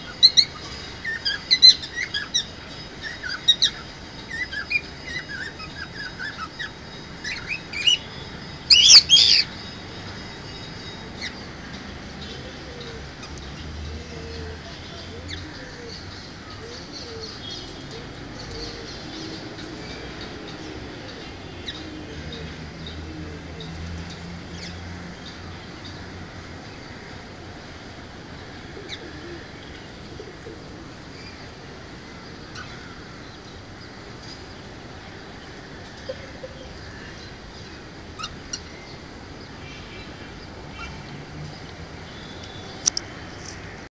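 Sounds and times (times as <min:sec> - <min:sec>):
steady outdoor hiss: 0:00.0 - 0:43.9
low cooing: 0:13.9 - 0:16.0.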